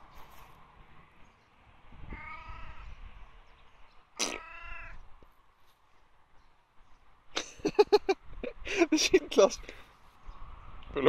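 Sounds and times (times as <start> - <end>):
cat meowing: 2.1 - 3.0, 4.2 - 5.0.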